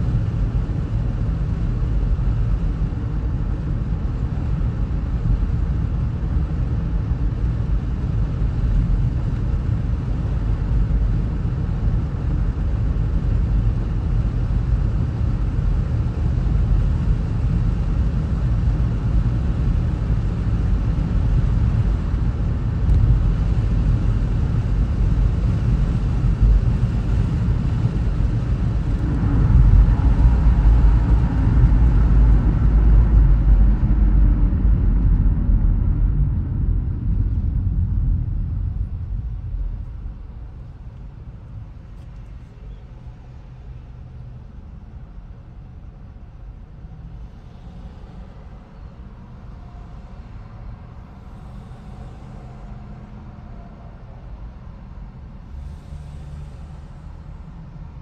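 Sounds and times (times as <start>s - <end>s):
car road noise rumble: 0.0s - 58.0s.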